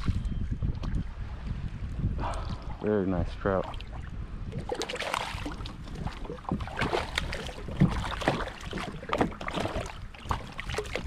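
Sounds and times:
wind on microphone: 0.0s - 11.0s
waves slapping a kayak hull: 3.6s - 11.0s.

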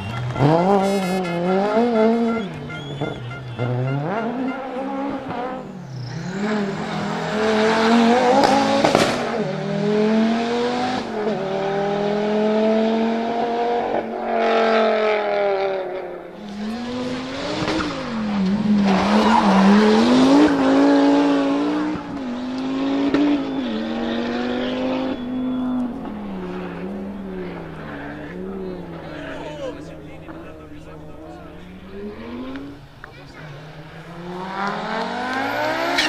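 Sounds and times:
rally car engines revving: 0.0s - 36.0s
sharp crack: 8.4s - 9.4s.

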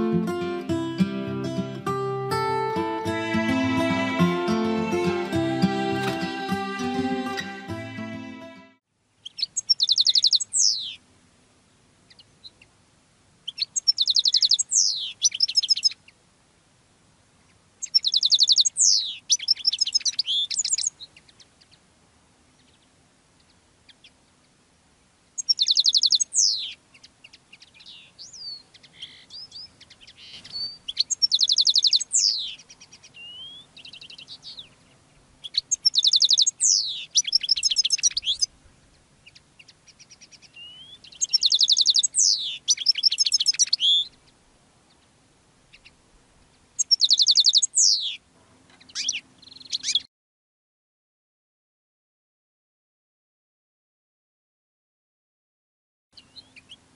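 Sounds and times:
goldfinch twittering trills: 9.2s - 11.0s, 13.5s - 16.0s, 17.8s - 21.1s, 25.4s - 34.7s, 35.4s - 38.5s, 39.2s - 44.1s, 46.8s - 48.2s.

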